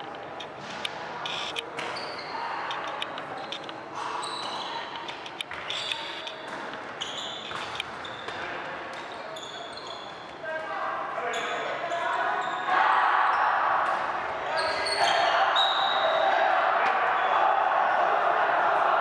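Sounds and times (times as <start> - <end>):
shoes squeaking on hall floor: 0.0 - 16.4
voices murmuring: 0.0 - 19.0.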